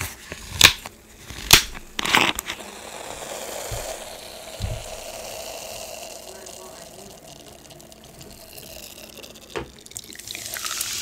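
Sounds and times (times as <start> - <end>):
carbonation hiss: 2.6 - 11.0.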